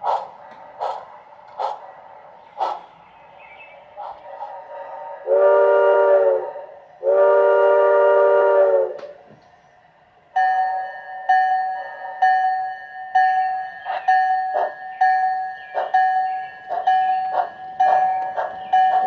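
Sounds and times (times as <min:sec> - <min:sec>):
steam whistle blasts: 0:05.2 - 0:09.1.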